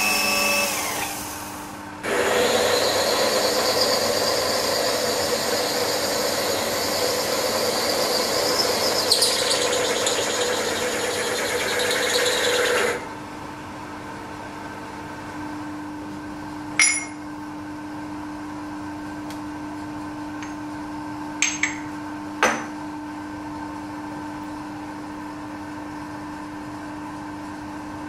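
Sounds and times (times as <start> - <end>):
workshop machinery humming: 0.0 - 25.5.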